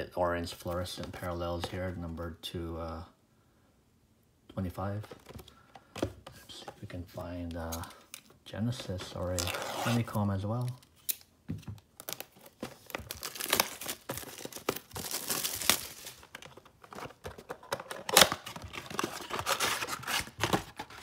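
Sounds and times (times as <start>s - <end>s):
plastic shrink-wrap tearing and crinkling: 12.0s - 16.4s, 17.9s - 21.0s.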